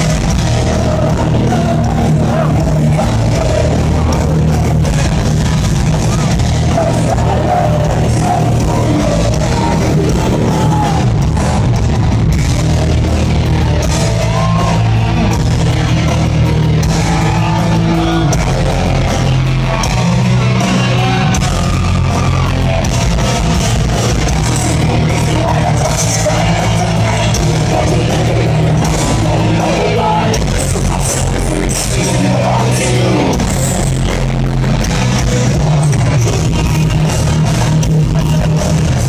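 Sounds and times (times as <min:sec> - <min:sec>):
person singing: 0:00.0 - 0:05.1, 0:06.1 - 0:11.9, 0:24.0 - 0:34.3, 0:35.2 - 0:39.0
bass guitar: 0:00.0 - 0:39.0
distorted electric guitars: 0:00.0 - 0:39.0
drums: 0:00.0 - 0:39.0.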